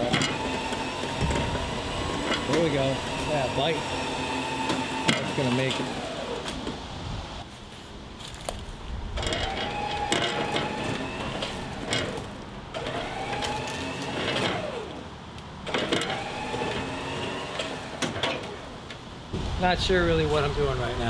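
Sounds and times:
electric winch motor whining: 0:00.0 - 0:06.8, 0:09.2 - 0:18.9.

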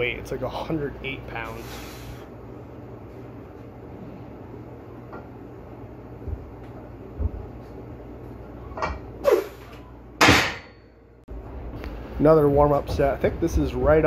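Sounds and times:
steady low hum: 0:00.0 - 0:14.0
sharp burst of breath: 0:01.6 - 0:02.3.

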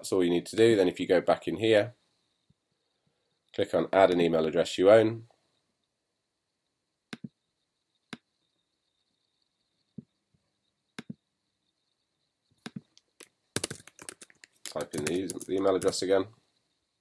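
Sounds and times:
computer mouse clicks: 0:12.6 - 0:16.0.

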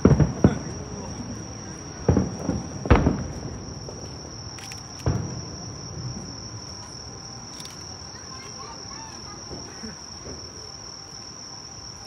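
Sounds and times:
distant fireworks booming: 0:00.0 - 0:07.4, 0:08.6 - 0:10.8
insects trilling: 0:00.0 - 0:12.0.

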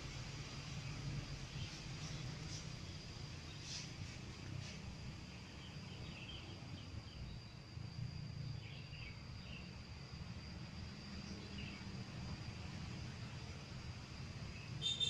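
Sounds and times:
high insect drone: 0:00.0 - 0:15.0
low steady rumble: 0:00.0 - 0:15.0.

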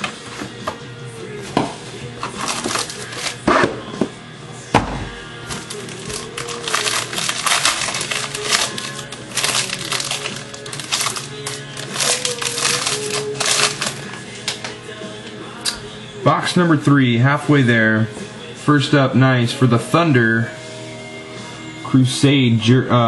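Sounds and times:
quiet background music: 0:00.0 - 0:23.0
plastic packaging crinkling: 0:02.4 - 0:03.4, 0:05.5 - 0:14.7.

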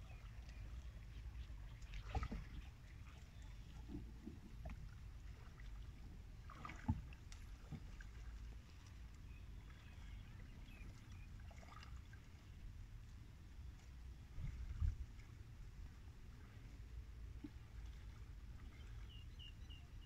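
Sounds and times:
wind rumble on microphone: 0:12.4 - 0:20.0.

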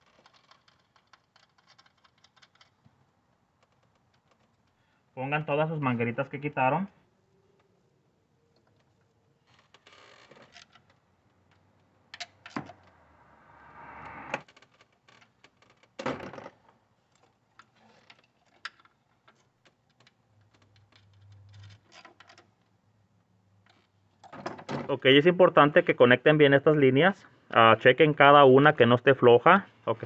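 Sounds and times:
faint plastic clicking and rustling: 0:00.0 - 0:05.0, 0:06.8 - 0:12.6, 0:14.4 - 0:22.9, 0:23.6 - 0:24.8.

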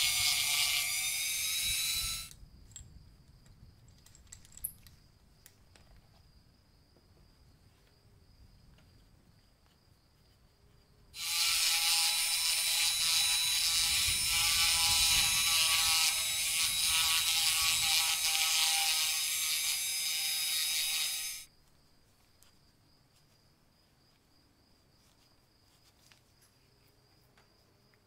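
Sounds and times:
rotary tool high-pitched whine: 0:00.0 - 0:02.4, 0:11.2 - 0:21.5.

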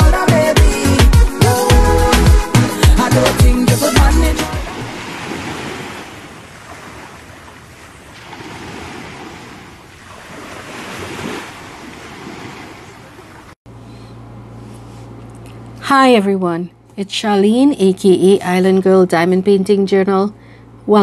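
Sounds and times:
small waves breaking on sand: 0:04.7 - 0:13.6
low steady hum: 0:13.0 - 0:21.0.

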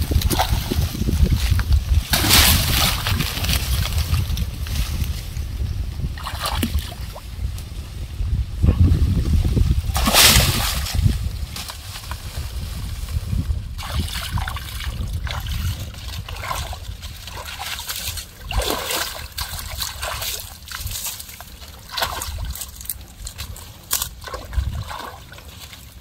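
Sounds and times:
water splashing from wading: 0:06.2 - 0:07.2, 0:09.9 - 0:10.9, 0:13.8 - 0:26.0.

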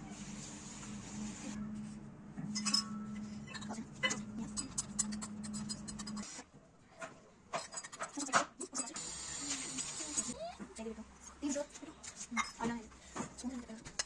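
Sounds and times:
steady low hum: 0:00.0 - 0:06.4.

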